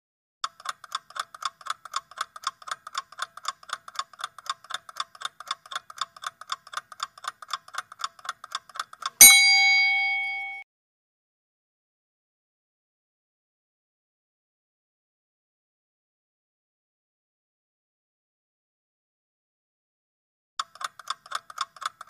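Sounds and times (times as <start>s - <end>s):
clock ticking: 0.4s - 10.6s, 20.6s - 22.0s
loud bell strike: 9.2s - 10.6s.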